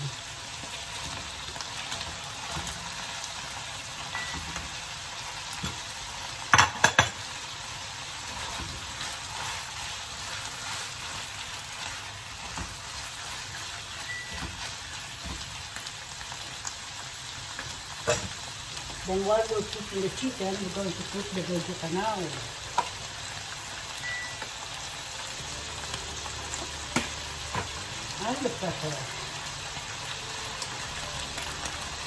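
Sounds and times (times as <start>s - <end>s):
meat sizzling in a wok: 0.0s - 32.0s
spatula stirring and scraping: 8.1s - 16.0s.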